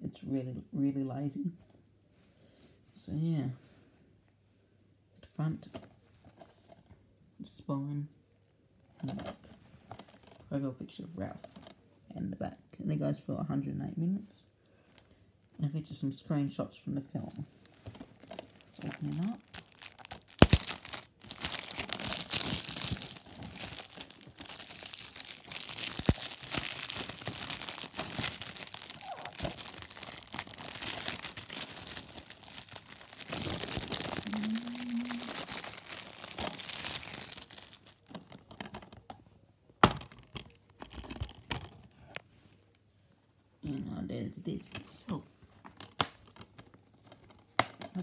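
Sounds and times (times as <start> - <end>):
plastic wrap tearing and crinkling: 9.0 - 10.5, 17.2 - 38.5.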